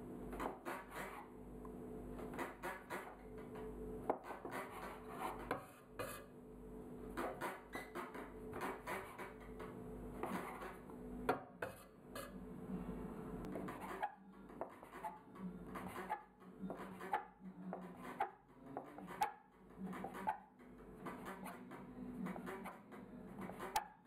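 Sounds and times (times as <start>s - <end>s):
bench scraper tapping wooden table: 7.2s - 11.8s, 13.6s - 20.4s, 21.0s - 24.0s.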